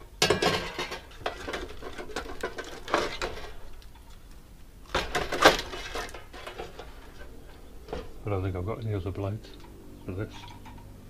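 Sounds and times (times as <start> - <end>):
metal clatter: 0.2 - 8.2
saw blades rattling: 4.9 - 8.2.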